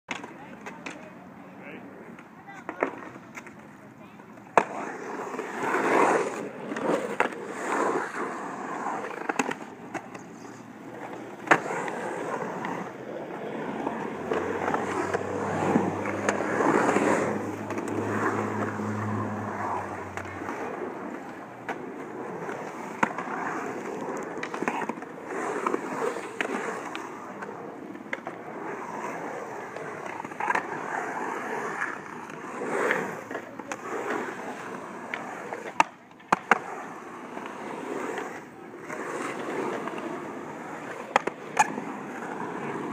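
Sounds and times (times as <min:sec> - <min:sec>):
skateboard clacking on concrete: 0:00.1 - 0:01.2, 0:02.0 - 0:42.9
skateboard wheels rolling on concrete: 0:00.1 - 0:42.9.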